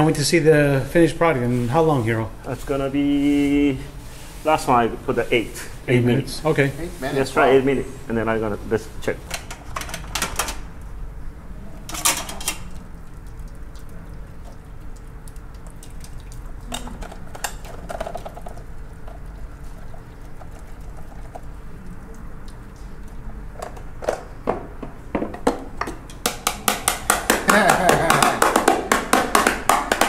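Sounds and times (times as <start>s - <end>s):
water running and dripping: 12.3s - 24.0s.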